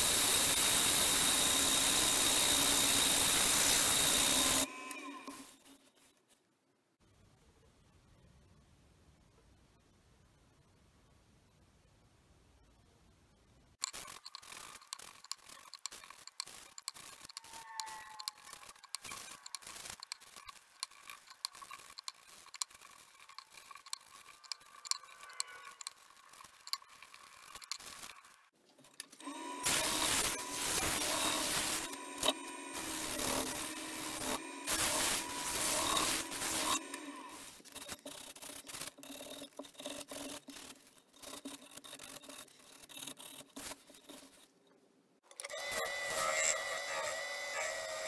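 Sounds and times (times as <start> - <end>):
wood lathe humming: 0.0 - 5.4, 29.2 - 37.6, 45.4 - 48.0
hand rubbing spinning bowl: 0.4 - 5.7, 13.8 - 44.6.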